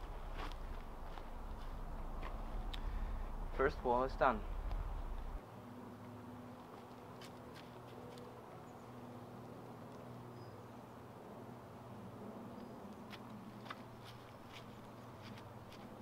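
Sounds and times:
crackling moss and twigs: 0.0s - 5.4s, 12.5s - 16.0s
low buzzing hum: 0.0s - 5.4s.

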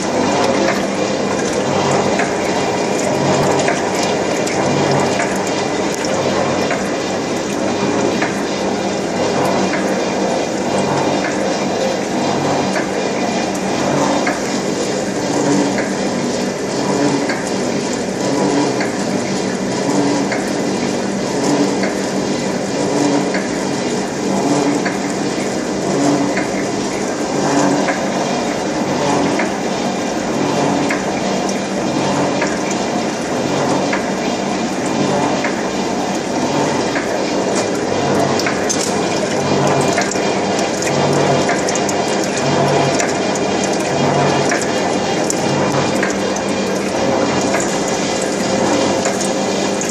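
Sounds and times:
gear cutting machine running: 0.0s - 49.9s.

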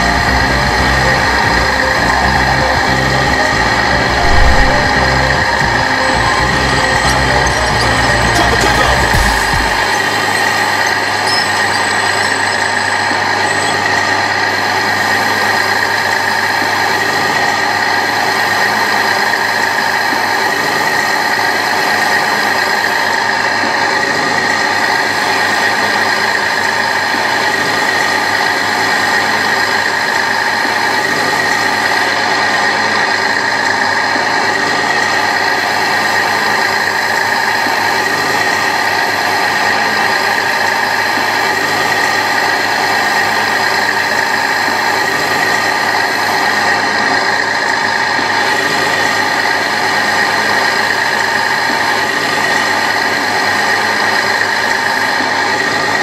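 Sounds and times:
toy engine drone with whine: 0.0s - 56.0s.

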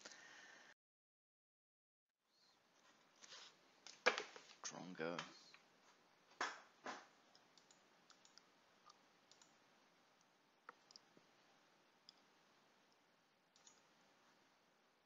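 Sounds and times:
very faint small clicks: 7.3s - 9.5s, 12.9s - 13.9s.

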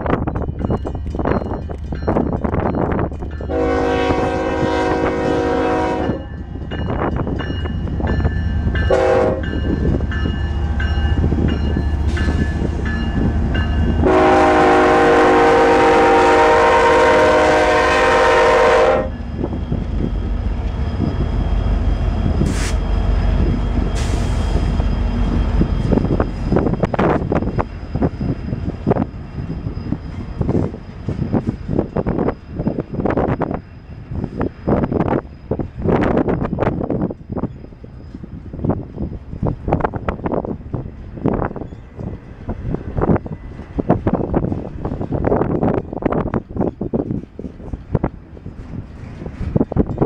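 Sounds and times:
diesel locomotive engines: 0.0s - 50.0s
train wheel noise: 0.0s - 50.0s
locomotive air horn blasts: 3.5s - 6.3s, 8.9s - 9.5s, 14.0s - 19.2s.

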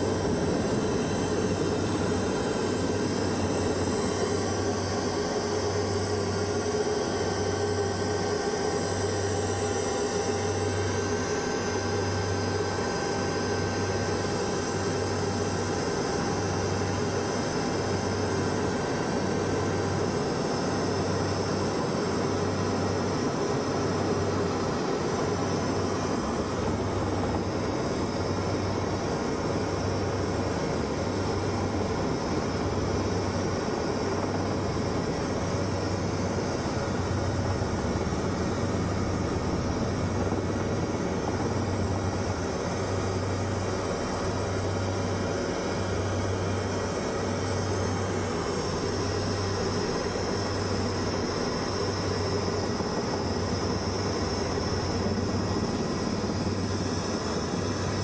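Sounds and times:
helicopter engine and rotor noise: 0.0s - 58.0s.

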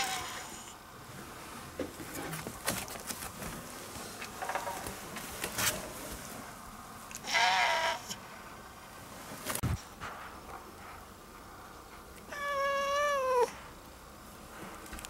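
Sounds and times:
cat meowing: 7.2s - 8.2s, 12.3s - 13.6s.

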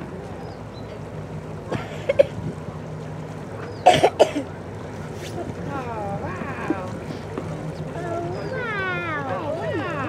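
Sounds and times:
boat engine humming: 0.0s - 10.0s
bursts of people's voices: 5.6s - 10.0s.

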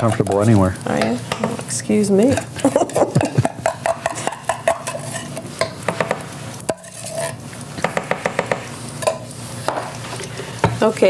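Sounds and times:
utensil scraping a tin can: 3.8s - 5.5s, 6.7s - 7.4s.

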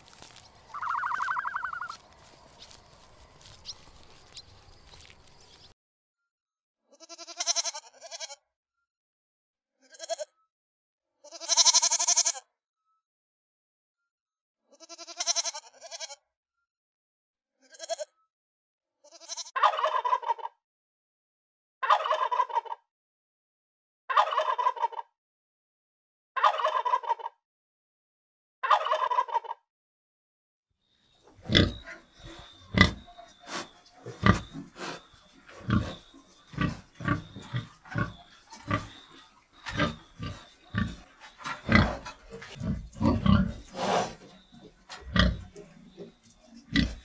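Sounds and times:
turkey gobbling: 0.1s - 2.1s, 19.6s - 20.5s, 21.8s - 22.8s, 24.2s - 25.0s, 26.4s - 27.3s, 28.6s - 29.6s
young goats bleating: 0.1s - 3.6s, 6.9s - 8.4s, 11.2s - 12.4s, 14.8s - 16.2s, 19.1s - 19.5s.

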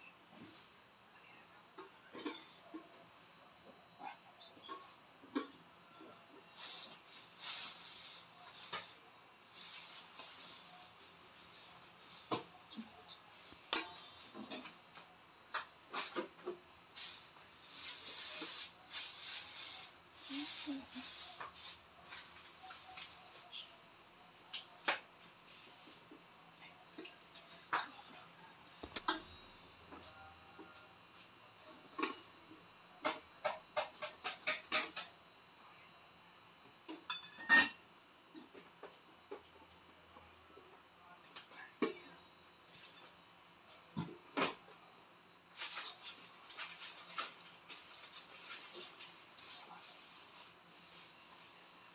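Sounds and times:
sifter scraping: 15.9s - 23.6s.

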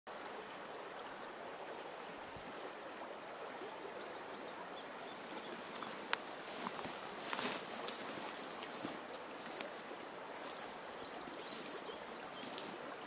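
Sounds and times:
river current rushing: 0.2s - 13.0s
small birds chirping: 3.5s - 13.0s.

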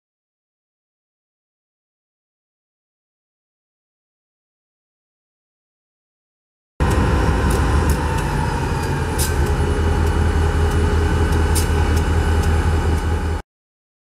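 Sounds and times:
diesel locomotive droning: 6.8s - 13.4s.

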